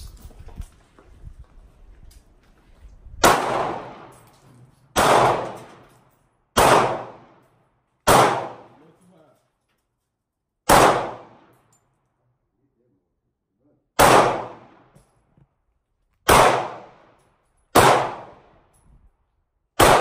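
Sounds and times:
handgun shots echoing: 3.2s - 4.3s, 4.9s - 6.0s, 6.6s - 8.8s, 10.7s - 11.7s, 14.0s - 15.1s, 16.2s - 18.7s, 19.8s - 20.0s.

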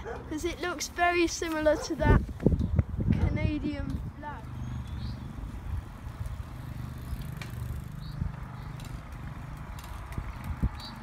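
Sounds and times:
bicycles riding past on tarmac: 3.8s - 11.0s.

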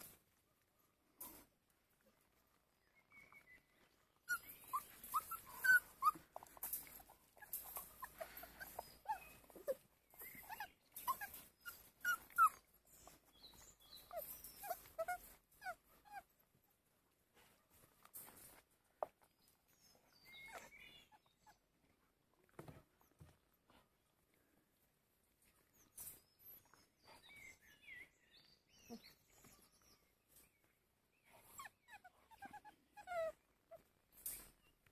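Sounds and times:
puppies whimpering: 3.1s - 16.4s, 20.2s - 21.6s, 31.2s - 34.6s.

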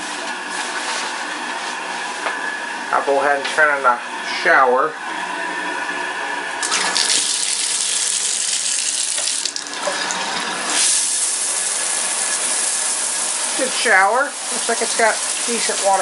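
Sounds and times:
shower spraying onto tub: 6.6s - 16.0s.

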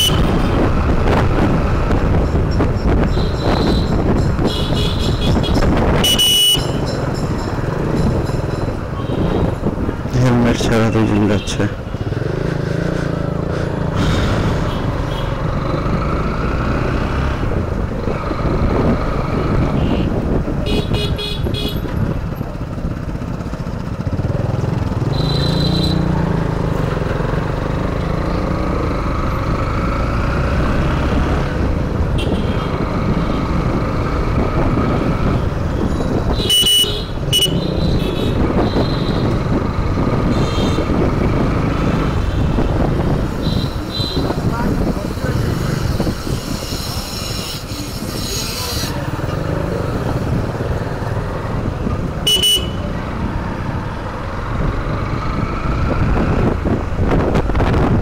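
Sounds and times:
horn honks: 0.0s - 0.4s, 3.2s - 6.9s, 19.7s - 21.9s, 32.2s - 32.8s, 36.3s - 39.4s, 40.3s - 41.0s, 52.2s - 53.0s
road and wind noise: 0.0s - 58.0s
motorcycle engine running: 20.5s - 29.4s.

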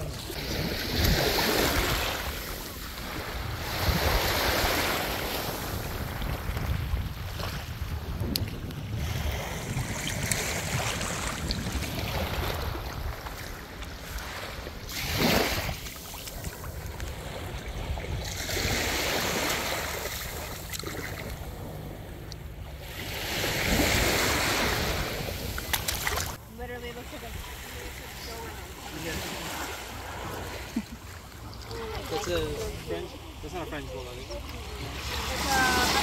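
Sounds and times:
small waves washing on beach: 0.0s - 36.0s
wind rumble on microphone: 5.6s - 15.0s.

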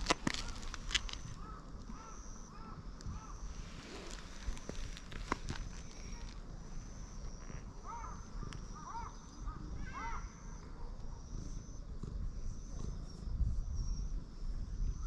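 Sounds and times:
steady low rumble: 0.0s - 9.8s.

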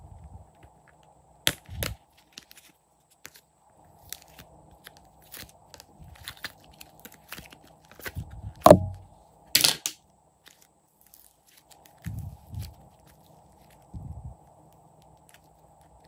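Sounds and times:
slime thudding: 8.6s - 9.1s.

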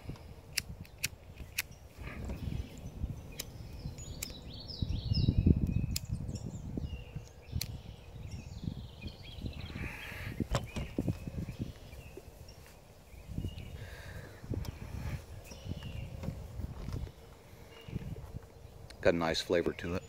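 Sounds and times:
wind on microphone: 0.0s - 19.0s
birds chirping: 0.0s - 20.0s
sharp clicks: 0.1s - 1.8s, 2.7s - 4.4s, 5.6s - 6.2s, 7.3s - 7.8s.

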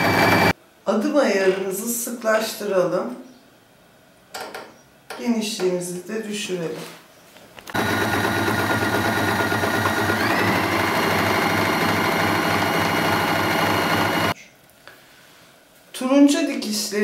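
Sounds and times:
electric sewing machine stitching: 0.0s - 0.5s, 7.7s - 14.4s.

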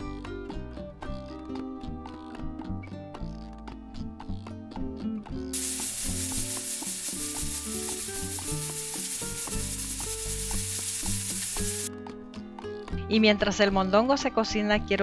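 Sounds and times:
background music: 0.0s - 15.0s
steam valve hissing: 5.6s - 11.9s.

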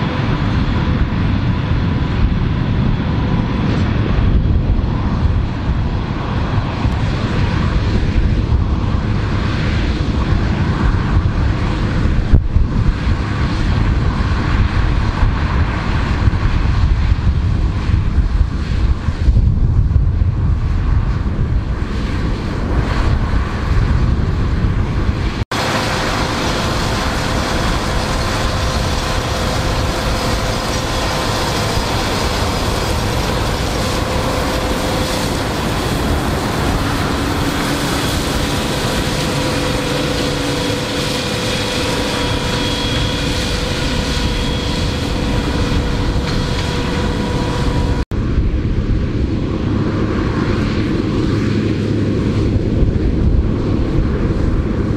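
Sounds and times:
wind on microphone: 0.0s - 54.9s
mulcher shredding stalks: 25.6s - 48.0s
tractor running under load: 25.6s - 48.0s.

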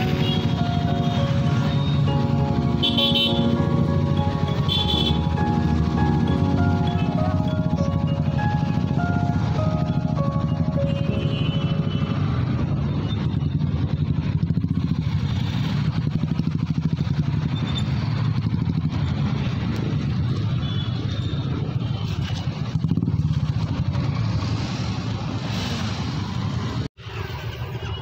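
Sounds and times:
motorcycle engine running: 0.0s - 20.8s.

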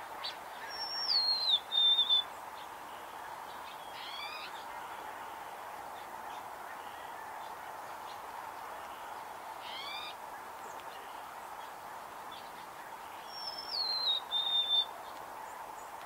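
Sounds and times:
background hiss: 0.0s - 16.0s
songbird whistling: 0.6s - 2.3s, 13.2s - 14.9s.

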